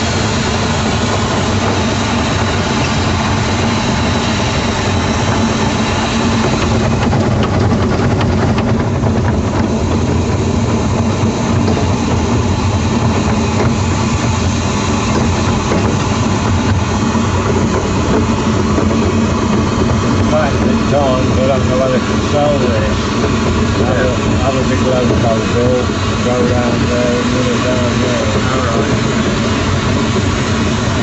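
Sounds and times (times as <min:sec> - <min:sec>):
diesel locomotive engine running: 0:00.0 - 0:31.0.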